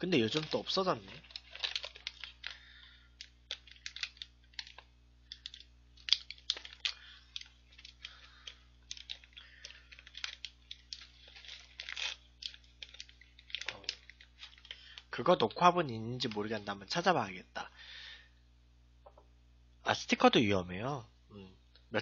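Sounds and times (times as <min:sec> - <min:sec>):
plastic bag crinkling: 0:00.0 - 0:15.4.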